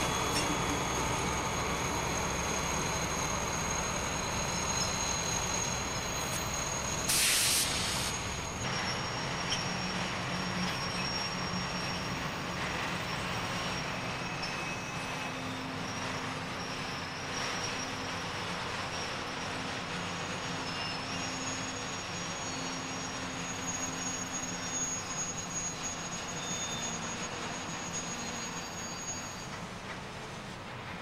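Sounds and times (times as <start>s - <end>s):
diesel locomotives running: 0.0s - 31.0s
air hiss: 7.0s - 8.3s.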